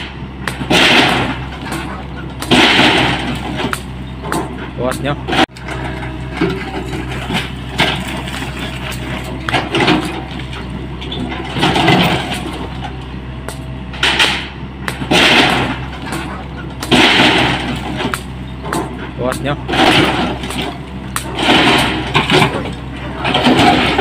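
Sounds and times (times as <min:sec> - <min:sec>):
excavator diesel engine running: 0:00.0 - 0:24.0
concrete and brick crashing down: 0:02.4 - 0:03.8, 0:05.3 - 0:12.7, 0:14.0 - 0:18.3, 0:19.6 - 0:24.0.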